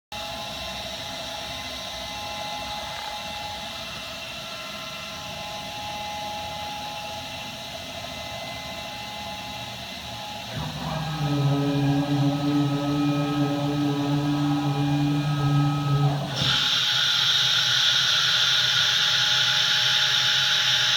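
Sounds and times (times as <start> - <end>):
whining tones: 10.4 - 20.9.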